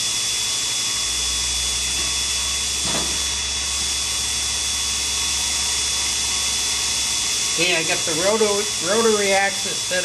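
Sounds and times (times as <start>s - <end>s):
low motor hum: 0.0s - 10.0s
machine motors whining: 0.0s - 10.0s.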